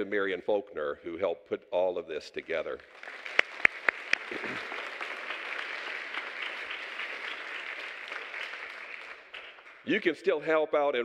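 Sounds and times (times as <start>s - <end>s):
crowd applauding: 2.8s - 10.1s
sharp close claps: 3.0s - 10.1s.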